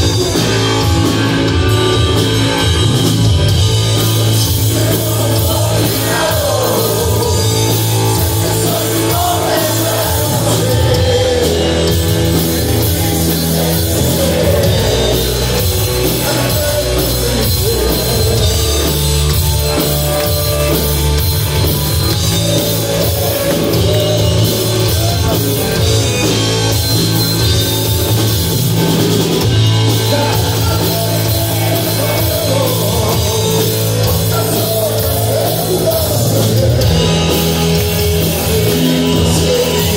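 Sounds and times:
bass guitar: 0.0 - 39.9
distorted electric guitar: 0.0 - 39.9
drum kit: 0.0 - 39.9
person singing: 4.0 - 20.7, 29.8 - 39.9.

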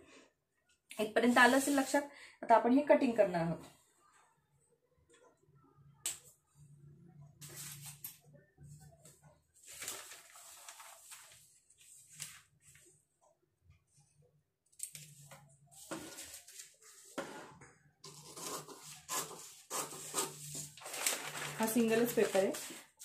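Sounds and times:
paper rustling and crinkling: 9.0 - 12.9, 14.8 - 23.0.

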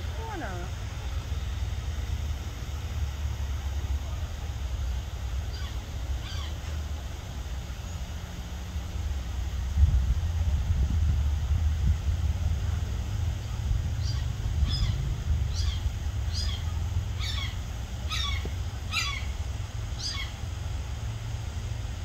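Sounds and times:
steady low rumble: 0.0 - 22.0
bird chirping: 14.0 - 19.3, 20.0 - 20.4.

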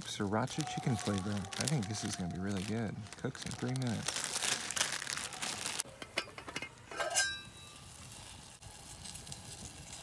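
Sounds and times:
crinkling rustle: 0.0 - 5.9, 7.8 - 10.0
metal lid clinking and ringing: 5.9 - 7.8.

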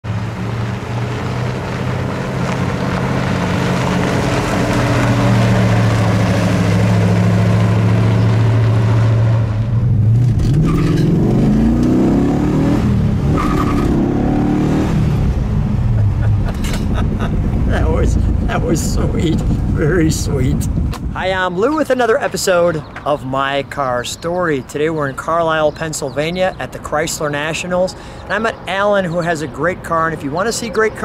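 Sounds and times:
car engine accelerating: 0.1 - 20.9.

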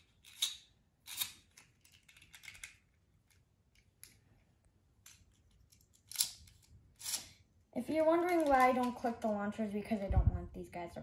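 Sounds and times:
small plastic parts clicking: 0.0 - 4.2, 5.0 - 7.4, 8.1 - 9.3.

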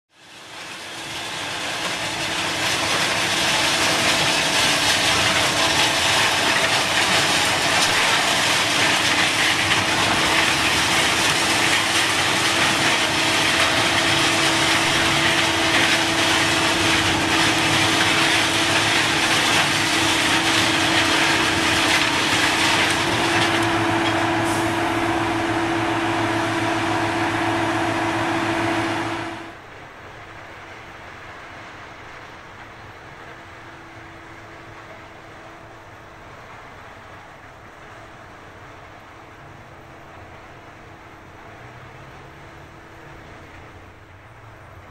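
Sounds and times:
machine engine running: 1.0 - 29.6.

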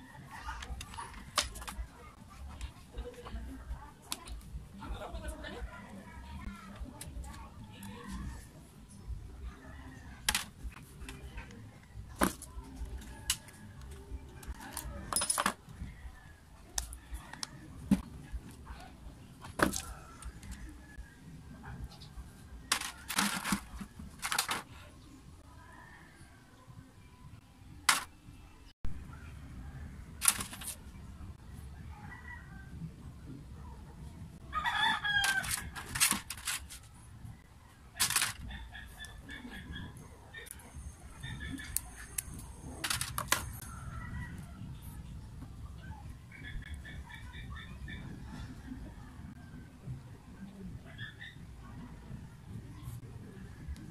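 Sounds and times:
rooster crowing: 34.5 - 35.8.

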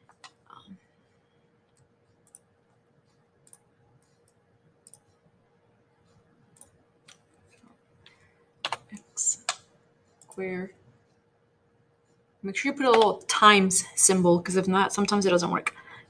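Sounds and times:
computer mouse clicks: 0.0 - 0.6, 1.7 - 5.2, 6.0 - 10.5, 12.8 - 13.3
faint steady hum: 0.0 - 16.0.

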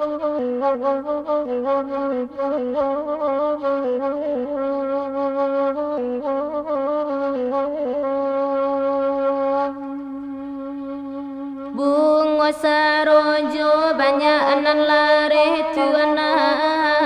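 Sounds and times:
bamboo flute melody: 0.0 - 12.8.

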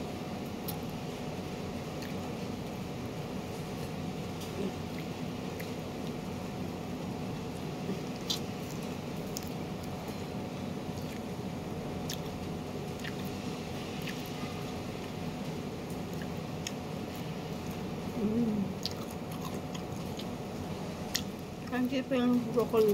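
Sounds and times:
steady background hum: 0.0 - 22.9
person chewing: 7.6 - 10.2, 10.8 - 11.4, 12.0 - 15.2, 15.9 - 20.4, 21.1 - 21.4.

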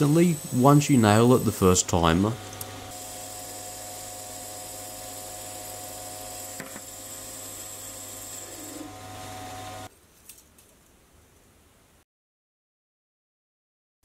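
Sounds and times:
lathe motor humming and whining: 0.0 - 9.9.

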